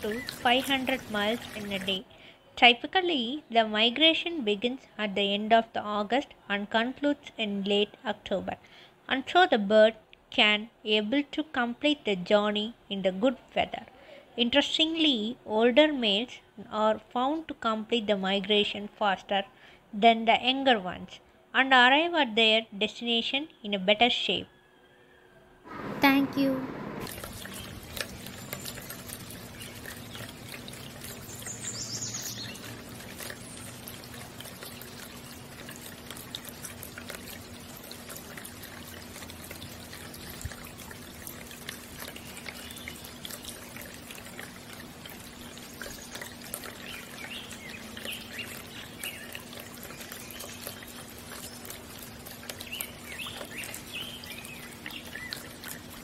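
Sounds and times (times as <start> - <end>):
fountain water bubbling: 0.0 - 2.0, 25.7 - 56.0
bird chirps: 31.2 - 32.6.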